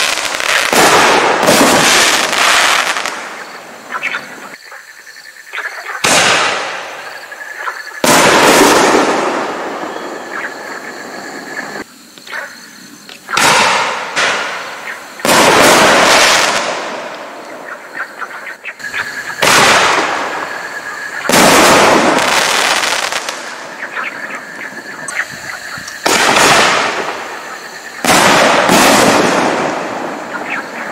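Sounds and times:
firework burst crackling: 0:00.0 - 0:03.5, 0:08.0 - 0:09.9, 0:13.4 - 0:17.4, 0:19.4 - 0:23.8, 0:26.0 - 0:30.3
firework bang: 0:00.7 - 0:02.4, 0:06.0 - 0:06.9, 0:08.0 - 0:09.8, 0:13.4 - 0:17.2, 0:19.4 - 0:20.5, 0:21.3 - 0:23.5, 0:26.0 - 0:27.3, 0:28.0 - 0:30.2.

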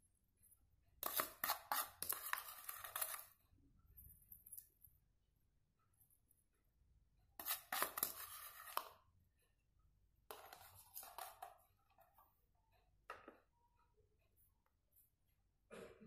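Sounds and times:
metal spoon scraping bowl: 0:01.0 - 0:03.4, 0:07.4 - 0:09.1, 0:10.3 - 0:11.6.

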